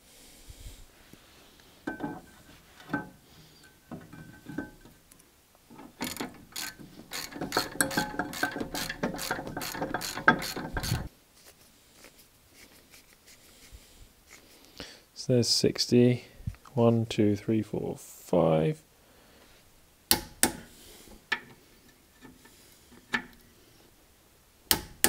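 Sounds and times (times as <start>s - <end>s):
hand ratchet clicking: 6.0s - 11.1s, 24.7s - 25.0s.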